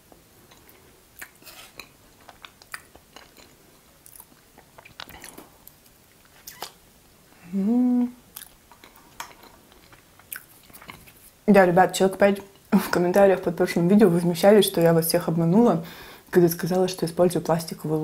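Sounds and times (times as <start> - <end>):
chewing with soft crunches: 0.4 - 6.8, 8.3 - 11.4
wet mouth clicks: 6.5 - 6.8
person humming mmm: 7.4 - 8.2.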